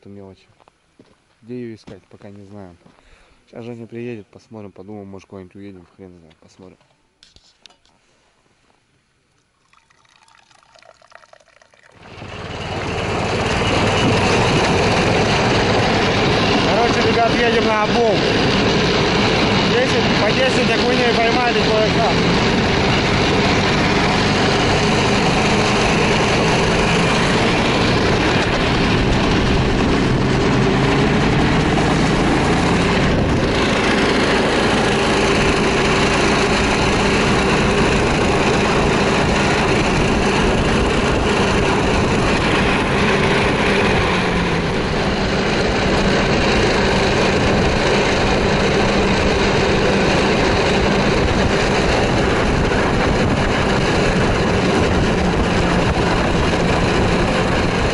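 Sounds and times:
snowmobile engine running: 0:12.0 - 0:57.9
steady rushing noise: 0:12.0 - 0:57.9.

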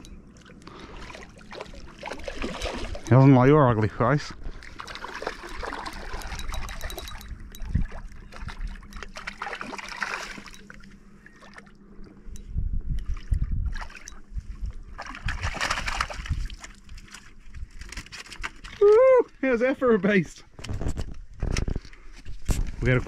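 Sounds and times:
water splashing in shallows: 0:00.4 - 0:11.8, 0:13.0 - 0:14.2, 0:14.8 - 0:17.2.

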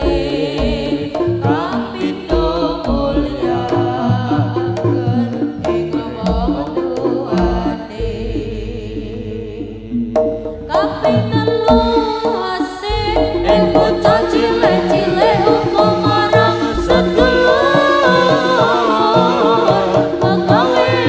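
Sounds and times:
drum strokes: 0:00.0 - 0:21.0
gamelan music: 0:00.0 - 0:21.0.

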